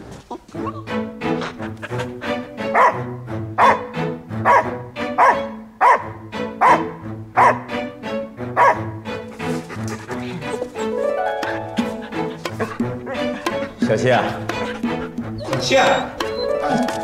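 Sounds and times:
background music: 0.2s - 17.0s
dog barking: 2.7s - 7.7s, 8.6s - 10.9s.

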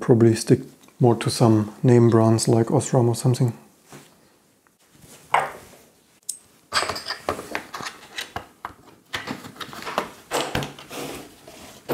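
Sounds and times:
tools clattering on wooden table: 6.7s - 8.4s.

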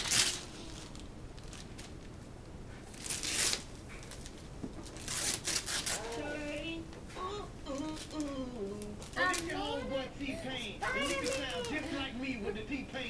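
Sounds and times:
wrapping paper tearing and rustling: 0.0s - 2.1s, 2.9s - 6.4s, 9.0s - 9.7s, 10.8s - 12.0s
person speaking: 6.0s - 13.0s.

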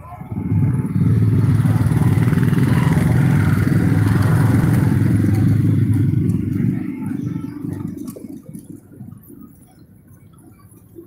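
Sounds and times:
motorcycle engine running: 0.0s - 8.2s.

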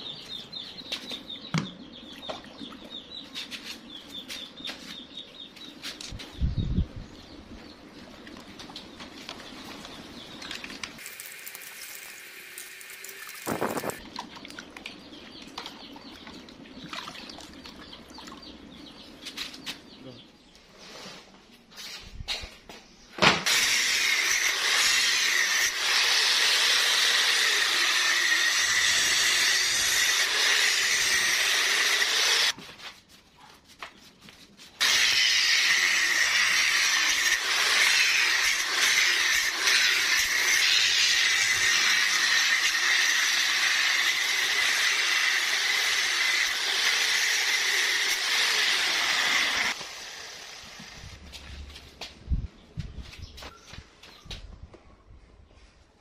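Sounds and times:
angle grinder cutting plastic: 11.0s - 14.0s, 23.4s - 32.6s, 34.8s - 51.1s.

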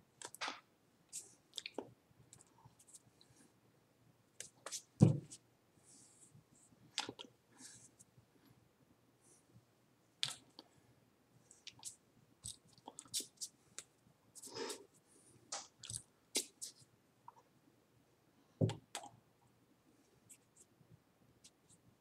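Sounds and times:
loud thump: 5.0s - 5.3s.

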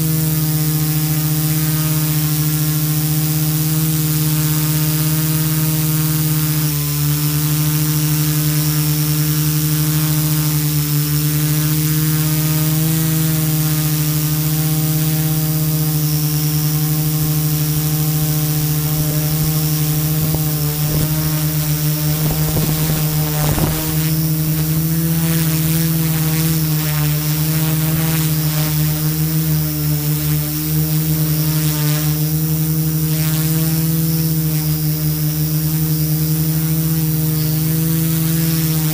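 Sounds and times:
drone motors humming: 0.0s - 29.9s.

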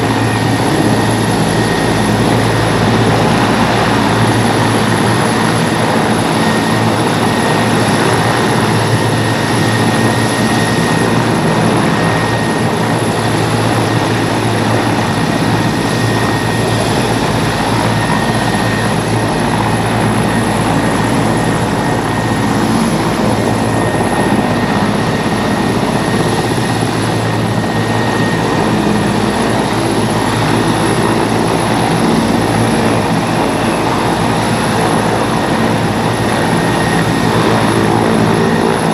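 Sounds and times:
helicopter rotor noise: 0.0s - 38.9s.

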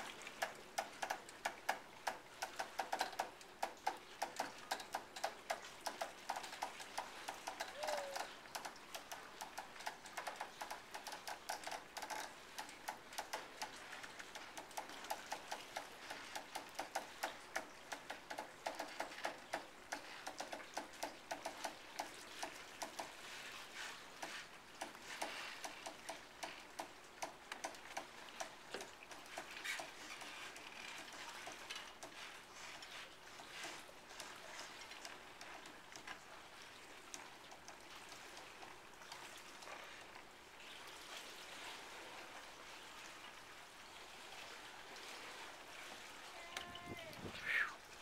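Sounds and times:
soft steady hiss: 0.0s - 48.0s
winch ratcheting clicks: 0.4s - 23.1s, 24.8s - 32.2s.

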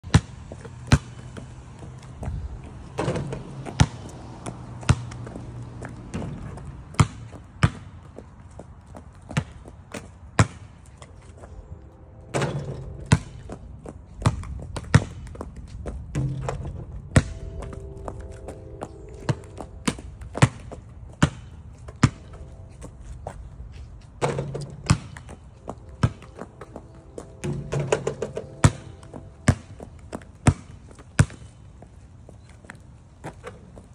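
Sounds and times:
basketball bouncing on concrete: 0.0s - 11.0s, 12.4s - 22.6s, 24.2s - 31.8s
ball hitting rim and backboard: 0.1s - 1.5s, 2.9s - 8.0s, 9.3s - 10.8s, 12.3s - 13.6s, 14.2s - 15.5s, 16.1s - 18.6s, 19.2s - 22.5s, 24.2s - 31.5s.

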